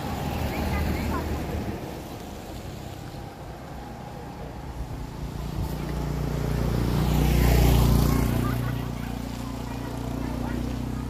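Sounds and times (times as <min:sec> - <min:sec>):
vehicle passing by: 0:00.0 - 0:11.0.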